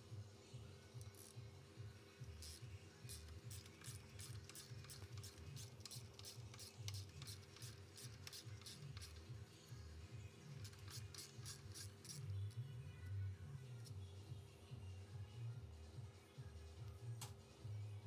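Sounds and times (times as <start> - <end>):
faint low hum: 0.0 - 18.0
ratchet wrench clicking: 2.4 - 9.2.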